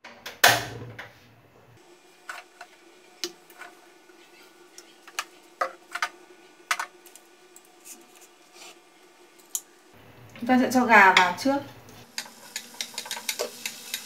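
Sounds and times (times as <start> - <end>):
frying pan clicks and ticks: 12.1 - 14.0.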